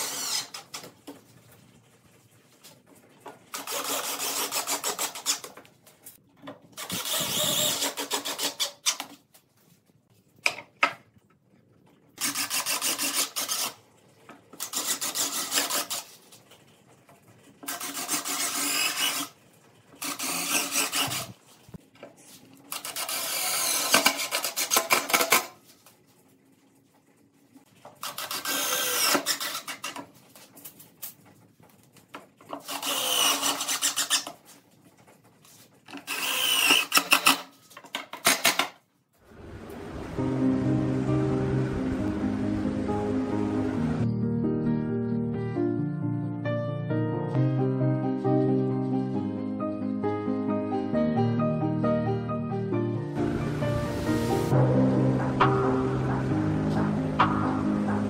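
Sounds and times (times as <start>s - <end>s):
impact driver driving screws: 6.8s - 9.1s, 22.8s - 25.4s, 28.0s - 29.9s, 36.0s - 37.5s.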